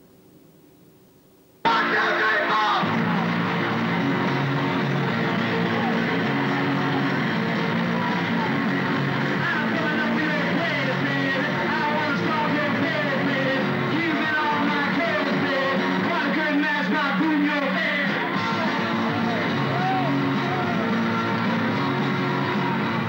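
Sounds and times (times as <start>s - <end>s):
rock band playing live: 1.7s - 23.0s
person singing: 7.8s - 21.9s.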